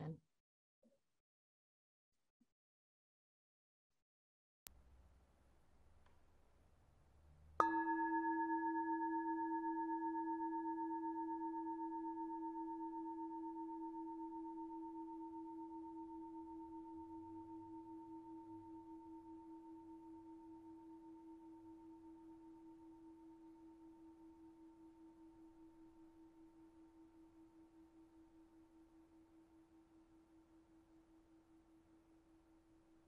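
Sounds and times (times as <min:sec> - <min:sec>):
singing bowl ringing: 0:07.6 - 0:22.4.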